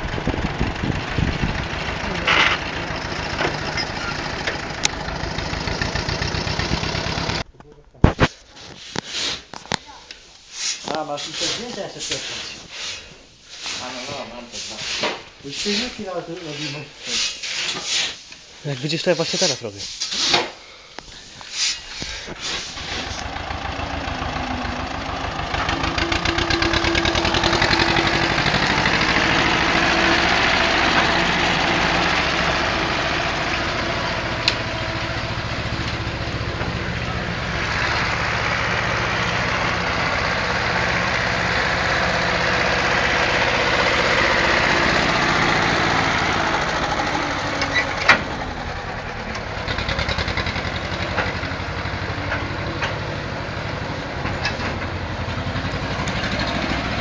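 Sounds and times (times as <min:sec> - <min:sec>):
tractor diesel engine running: 0:00.0 - 0:07.5, 0:21.3 - 0:57.0.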